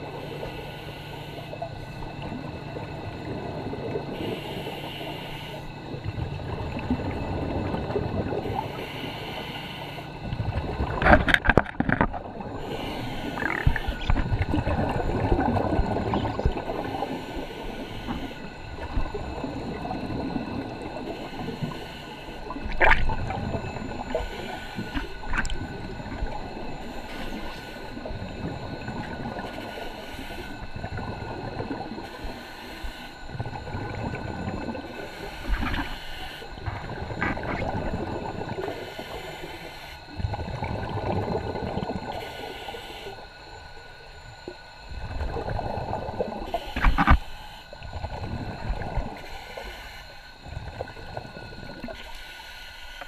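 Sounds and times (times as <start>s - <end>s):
diver breathing underwater: 3.9s - 5.9s, 8.2s - 11.1s, 12.4s - 43.6s, 45.2s - 53.0s
air bubbles gurgling: 5.8s - 8.6s, 10.2s - 17.2s, 22.4s - 29.6s, 30.5s - 32.2s, 33.2s - 39.4s, 40.0s - 42.2s, 44.4s - 47.1s, 47.8s - 49.2s.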